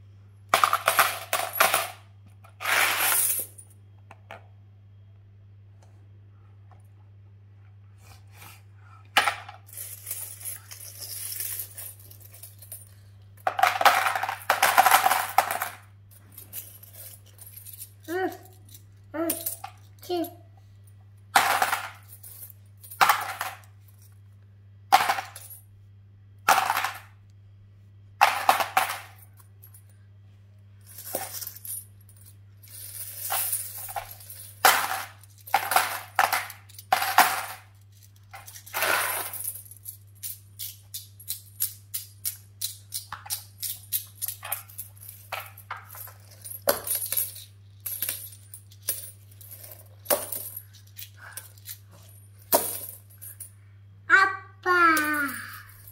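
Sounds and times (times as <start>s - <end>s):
coins clinking: 0.5s - 3.7s, 9.2s - 20.4s, 21.4s - 24.2s, 24.9s - 25.6s, 28.2s - 30.0s, 30.8s - 53.6s, 55.0s - 55.9s.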